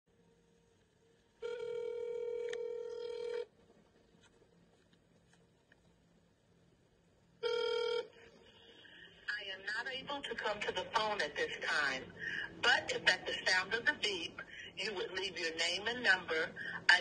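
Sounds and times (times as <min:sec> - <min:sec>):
telephone ringback tone: 0:01.4 - 0:03.5, 0:07.4 - 0:08.2.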